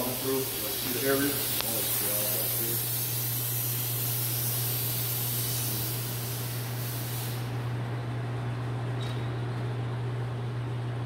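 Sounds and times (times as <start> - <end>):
spray hissing: 0.0 - 7.6.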